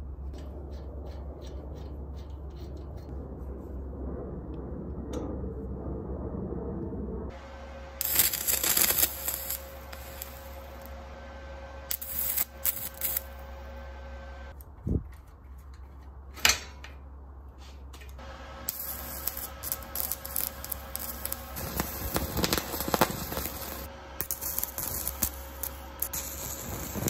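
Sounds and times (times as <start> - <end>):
steady low hum: 0.0 - 27.0
arc welder crackling: 7.3 - 14.8, 18.2 - 27.0.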